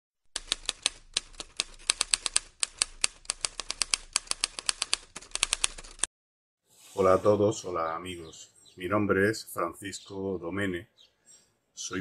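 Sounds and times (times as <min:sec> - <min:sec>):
manual typewriter typing: 0:00.4 - 0:06.1.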